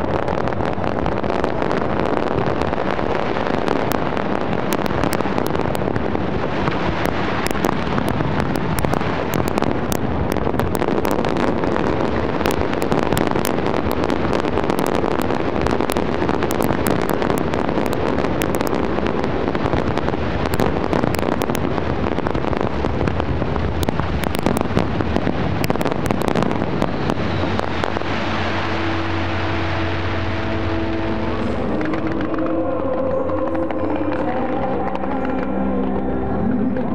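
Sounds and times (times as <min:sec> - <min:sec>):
fireworks exploding and crackling: 0:00.0 - 0:36.9.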